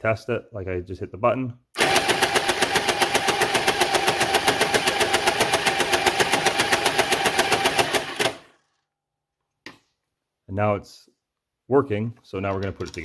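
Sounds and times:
toy blaster mechanism clattering: 1.8 - 8.8.

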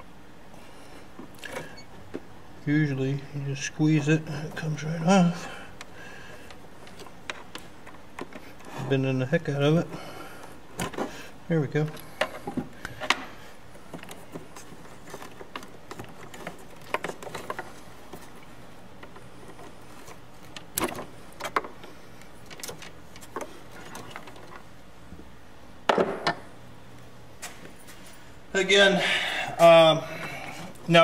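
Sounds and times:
hands handling wires and terminals: 5.8 - 8.8, 11.8 - 24.7.

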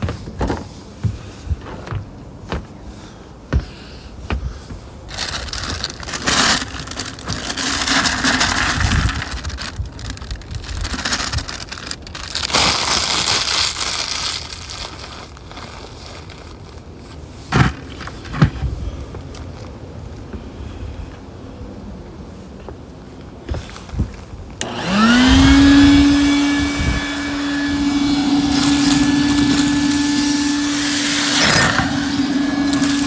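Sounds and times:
cereal rattling into plastic bucket: 5.1 - 15.0
plastic bag crinkling: 5.1 - 17.2, 28.4 - 30.6.

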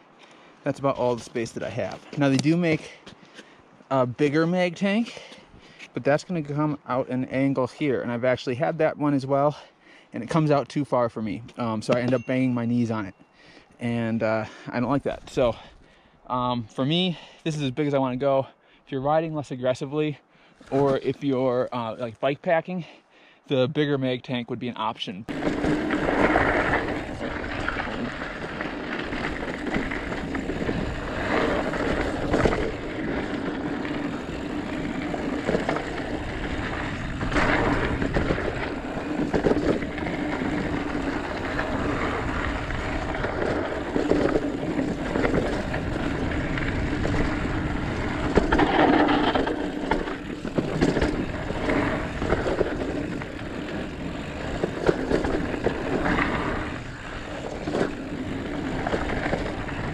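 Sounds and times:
bike tyres rolling rattle: 25.3 - 59.9.

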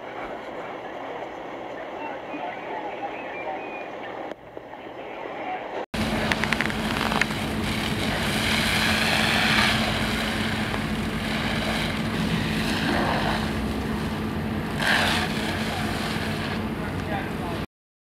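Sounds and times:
engine drone: 6.0 - 17.7
hose stream spraying water: 6.0 - 17.7.

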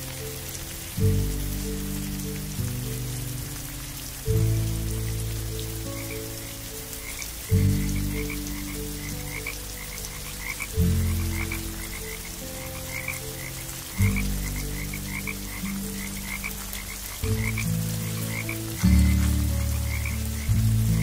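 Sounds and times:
deep frog croak: 5.4 - 21.0
frogs chirping: 5.6 - 21.0.

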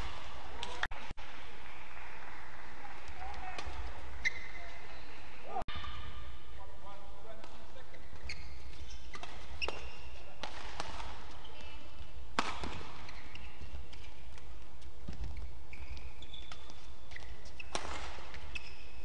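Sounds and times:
rackets hitting shuttlecock: 3.0 - 4.8, 7.4 - 18.8
shoe squeaks: 4.2 - 5.1, 7.8 - 10.4, 11.2 - 12.0, 12.9 - 14.3, 15.1 - 19.0.

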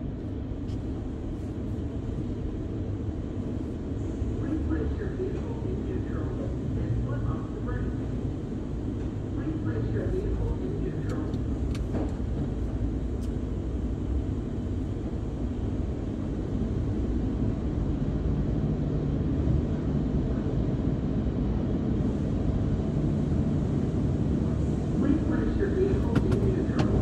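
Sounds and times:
car wash machinery rumbling: 0.0 - 27.0.

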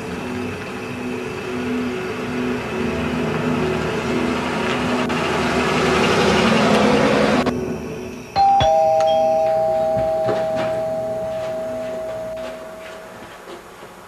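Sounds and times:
car driving up: 0.0 - 13.3
two-tone doorbell chime: 8.4 - 13.2.

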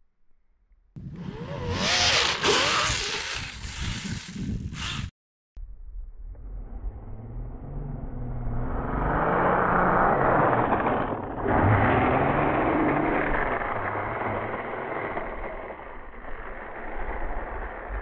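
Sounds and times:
rc snowmobile motor passing: 1.0 - 5.1, 6.5 - 18.0
track throwing up snow: 10.2 - 18.0.

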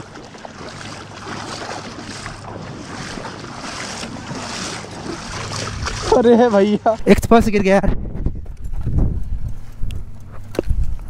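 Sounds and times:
wind on microphone: 2.2 - 6.3, 7.0 - 11.0.

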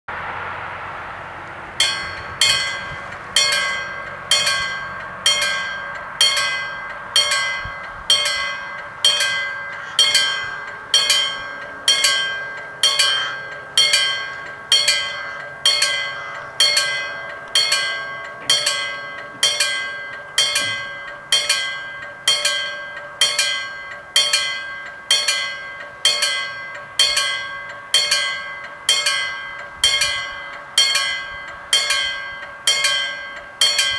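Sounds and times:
rush of noise: 0.1 - 11.9
level crossing warning bell: 1.8 - 33.9.

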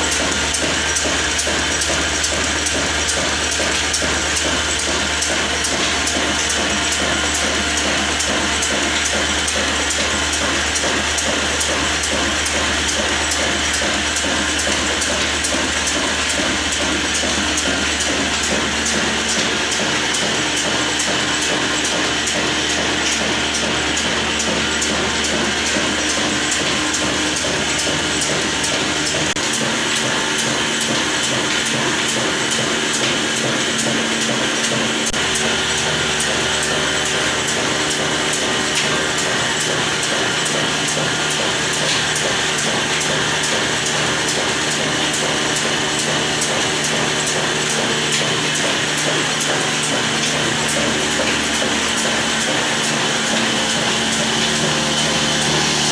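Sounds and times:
diesel engine running: 34.4 - 55.9.

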